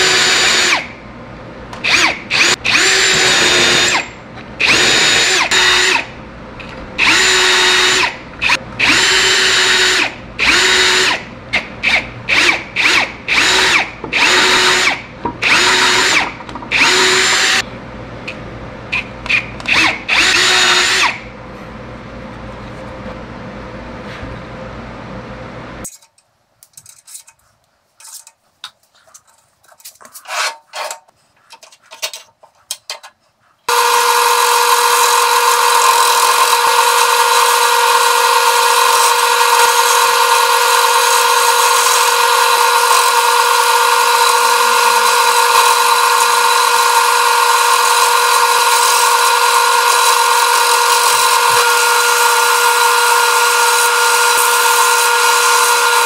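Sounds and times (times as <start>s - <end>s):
turning tool cutting wood: 1.8s - 6.1s, 7.0s - 11.2s, 11.8s - 17.6s, 19.3s - 21.2s, 33.7s - 56.0s
wood lathe whining: 1.9s - 4.0s, 7.0s - 11.2s, 12.3s - 17.6s, 33.7s - 56.0s.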